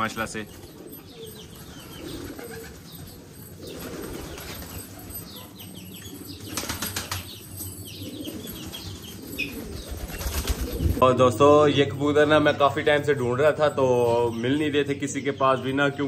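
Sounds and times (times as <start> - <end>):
pigeons cooing: 0.0 - 12.9
wings fluttering: 0.6 - 5.2, 6.3 - 11.0.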